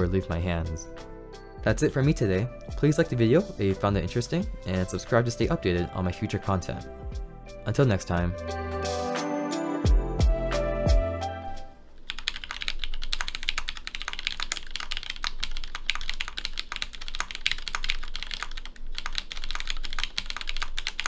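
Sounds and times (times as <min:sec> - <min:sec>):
mechanical keyboard typing: 0:12.0 - 0:21.0.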